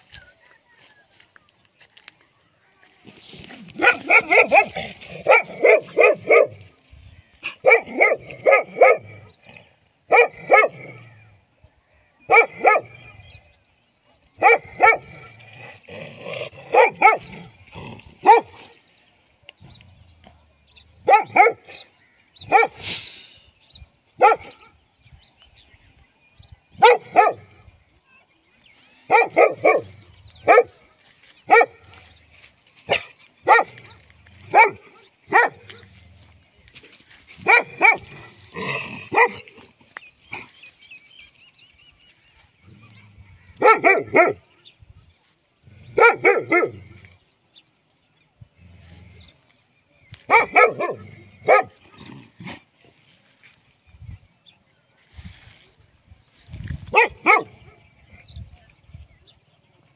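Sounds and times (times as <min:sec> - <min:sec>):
dog barking: 0:03.7 - 0:06.7, 0:07.4 - 0:09.3, 0:10.1 - 0:11.0, 0:12.3 - 0:13.2, 0:14.4 - 0:15.3, 0:16.6 - 0:18.7, 0:21.0 - 0:22.8, 0:24.2 - 0:24.8, 0:26.8 - 0:27.6, 0:29.1 - 0:30.8, 0:31.5 - 0:32.0, 0:32.9 - 0:35.9, 0:37.4 - 0:39.7, 0:43.5 - 0:44.6, 0:45.9 - 0:47.1, 0:50.3 - 0:52.6, 0:56.9 - 0:57.8.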